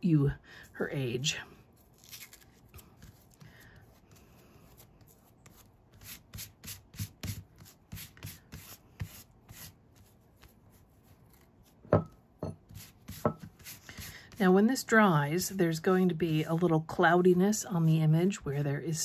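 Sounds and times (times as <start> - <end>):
fingertips scrubbing paper: 1.8 - 11.8, 12.7 - 14.8.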